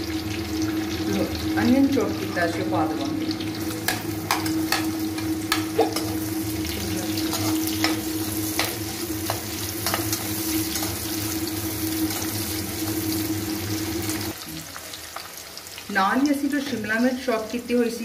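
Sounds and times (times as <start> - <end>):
onions sizzling in hot oil: 0.0 - 18.0.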